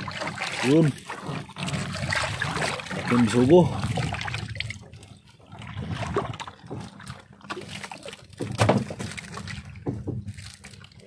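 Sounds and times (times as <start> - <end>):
water splashing and dripping: 0.0 - 11.0
knocks on a boat: 8.4 - 9.1, 9.8 - 10.3.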